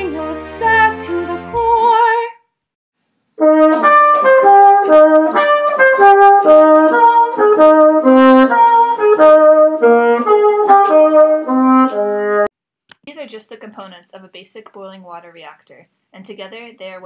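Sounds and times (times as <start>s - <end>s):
brass instrumental melody: 3.4s - 12.5s.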